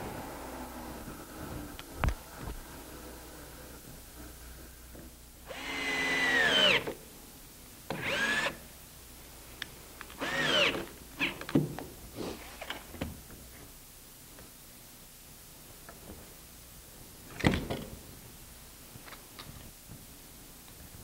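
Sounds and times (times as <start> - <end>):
power tool motor bursts: 5.5 - 7.0, 7.9 - 8.6, 10.2 - 11.4.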